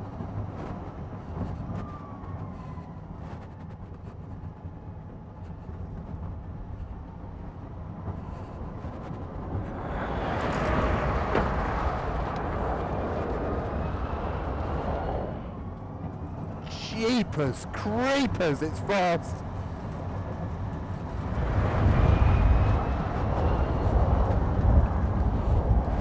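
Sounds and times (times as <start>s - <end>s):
electric car hum: 6.1s - 16.8s.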